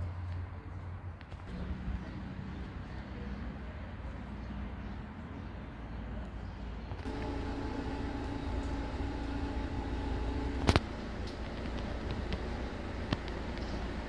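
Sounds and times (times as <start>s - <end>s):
distant traffic rumble: 0.0s - 14.0s
droning hum of fixed tones: 7.1s - 14.0s.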